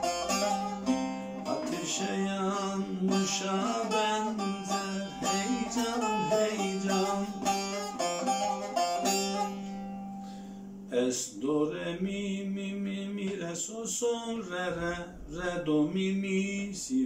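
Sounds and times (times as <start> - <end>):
plucked lute melody: 0.0 - 10.4.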